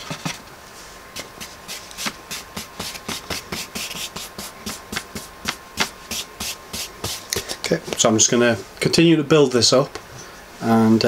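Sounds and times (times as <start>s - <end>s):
paintbrush strokes on foam board: 0.7s - 7.3s.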